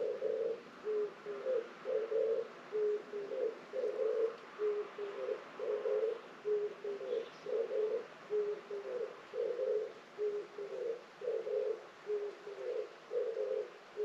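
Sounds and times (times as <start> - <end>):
dove cooing: 0.0 - 14.0.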